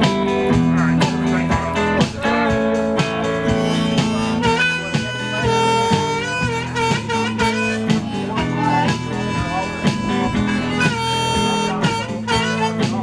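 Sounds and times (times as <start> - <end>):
electric guitar strumming chords: 0.0 - 13.0
harmonica bending long notes: 1.4 - 13.0.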